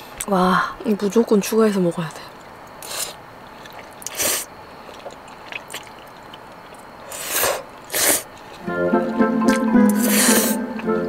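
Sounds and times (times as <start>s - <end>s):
noodles being slurped: 2.8s - 8.6s, 9.9s - 10.6s
background music: 8.6s - 11.0s.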